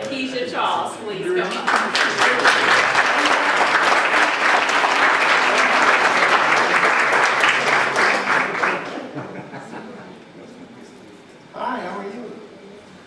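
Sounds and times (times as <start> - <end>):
crowd applauding: 1.4 - 9.2.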